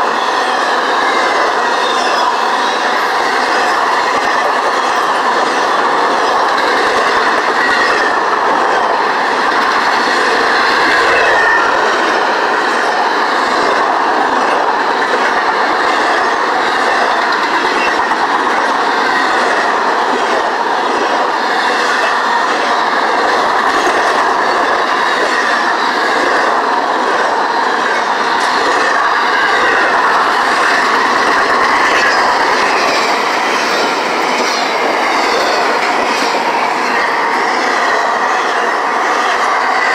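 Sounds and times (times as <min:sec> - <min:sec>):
train wheels clattering over rails: 0:00.0 - 0:39.9.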